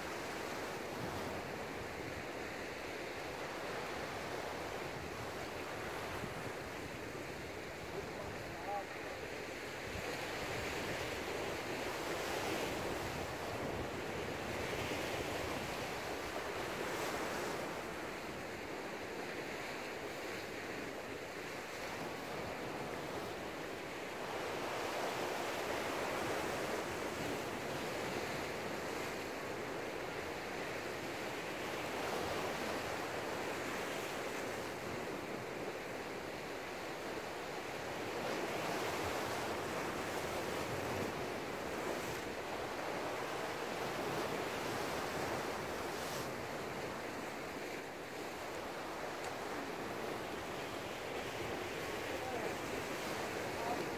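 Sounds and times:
sea waves surging: 21.2 - 53.9.

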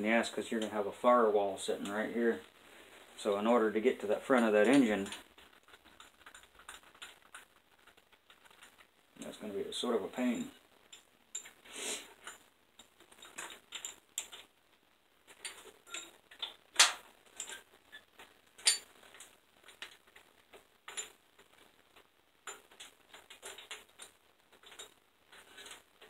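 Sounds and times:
hand tools clinking on metal: 18.6 - 18.9.

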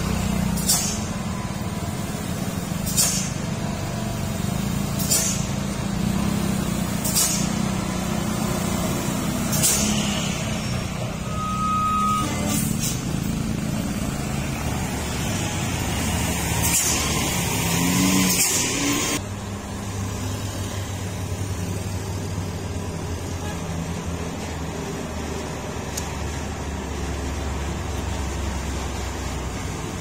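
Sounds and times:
diesel trucks at low speed: 0.0 - 30.0
low drone of diesel engines: 0.0 - 30.0
air brake hisses: 0.5 - 1.2, 2.8 - 3.4, 4.9 - 5.6, 7.0 - 7.6, 9.4 - 13.2, 16.6 - 17.3.

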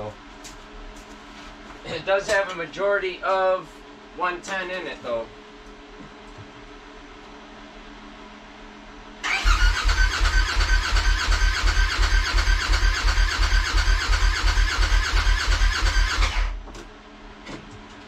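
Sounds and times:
engine cranking on starter: 9.2 - 16.6
starter whine: 9.2 - 16.6.

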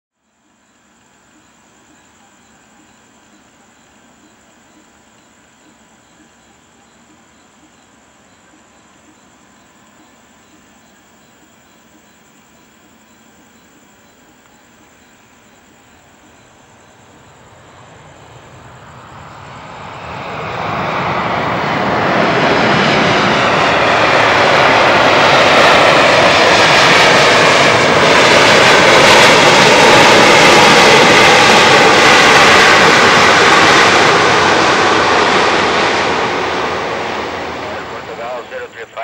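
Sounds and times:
jet engines of landing airliner: 8.8 - 39.0.

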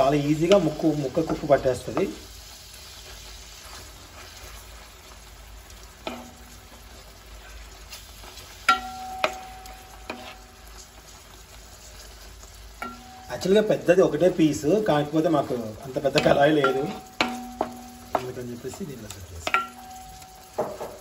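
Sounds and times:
wooden spatula knocking pan: 0.0 - 2.2, 6.0 - 6.7, 8.6 - 10.6, 12.8 - 13.6, 15.5 - 21.0
fish sizzling in oil: 0.0 - 21.0.

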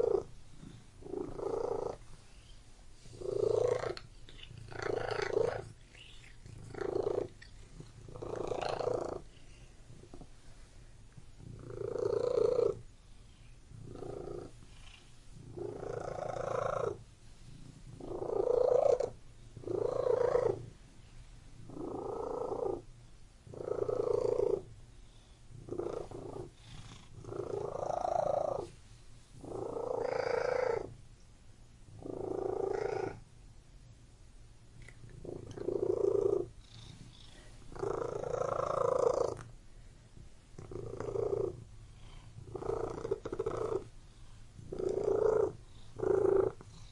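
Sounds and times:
cat purring: 0.0 - 28.8, 29.4 - 31.0, 31.9 - 33.3, 34.8 - 39.6, 40.5 - 46.9.

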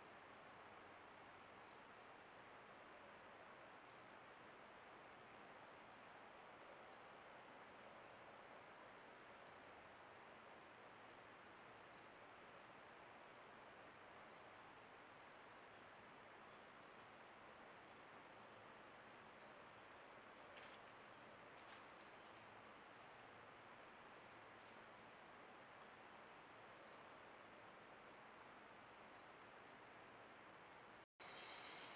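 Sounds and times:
insect chirps: 0.3 - 2.0, 2.7 - 6.1, 6.8 - 31.9
steady hiss: 8.9 - 31.9.

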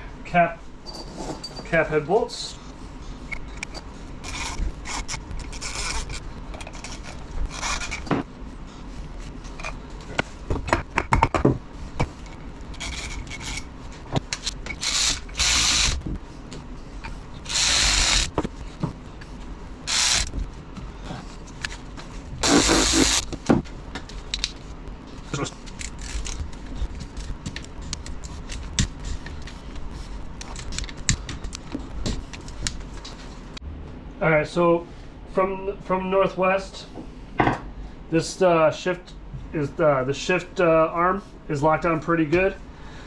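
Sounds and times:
metal tools clinking: 0.9 - 1.8.

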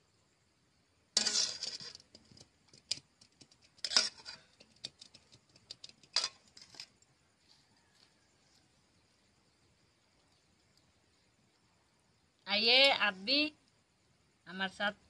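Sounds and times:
metal spatula scraping pan: 1.2 - 2.1, 3.8 - 4.6.

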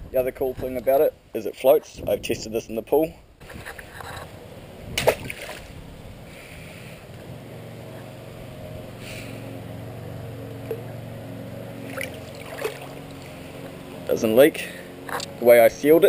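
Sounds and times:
steady low hum: 2.2 - 16.0
water lapping: 3.4 - 6.8, 11.8 - 13.8
pole smacking water: 4.9 - 5.8, 11.8 - 13.4.

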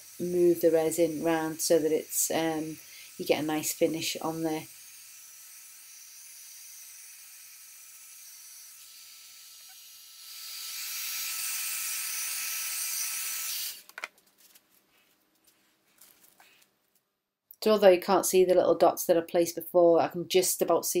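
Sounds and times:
heat gun blowing hot air: 0.0 - 13.9.

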